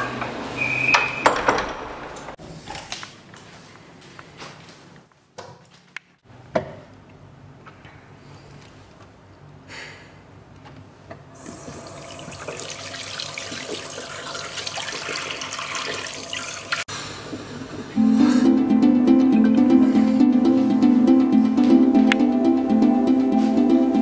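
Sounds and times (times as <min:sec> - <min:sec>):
water running: 0:11.4 - 0:16.9.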